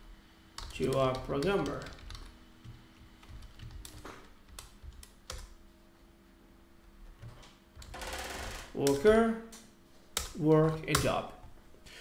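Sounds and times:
computer keyboard key clicks: 3.2 - 5.5.

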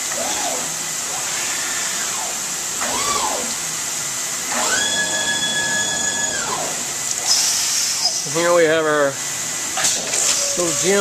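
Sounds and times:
coolant water spray hiss: 0.6 - 11.0
stone router whine: 4.4 - 8.5.

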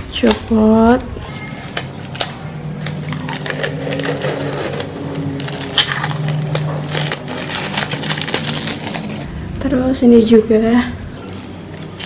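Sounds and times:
plastic wrap crinkling: 1.2 - 9.3, 11.2 - 12.0.

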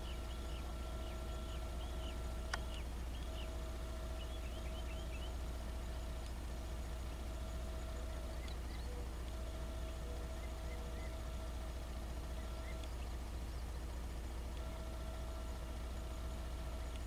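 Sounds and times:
high bird chirps: 0.0 - 5.4, 12.2 - 13.9
faint steady hum: 0.0 - 17.0
steady low rumble: 0.0 - 17.0.

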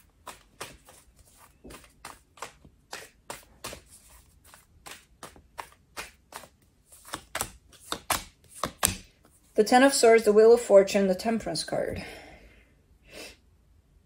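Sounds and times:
cards being shuffled: 0.0 - 9.6.

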